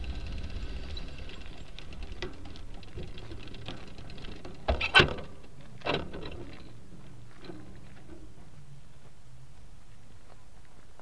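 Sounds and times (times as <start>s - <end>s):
loud clatter over bumps: 0.0s - 8.4s
camera rattling on bicycle: 0.0s - 8.7s.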